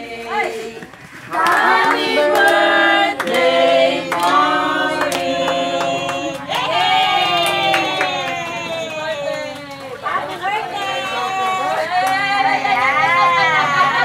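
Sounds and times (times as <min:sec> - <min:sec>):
group of people singing: 0:00.0 - 0:08.2
hand claps: 0:04.1 - 0:04.4.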